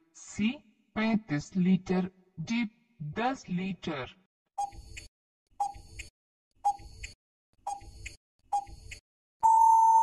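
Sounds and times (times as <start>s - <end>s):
timer ticks: 4.6s - 9.0s
loud steady beep: 9.4s - 10.0s.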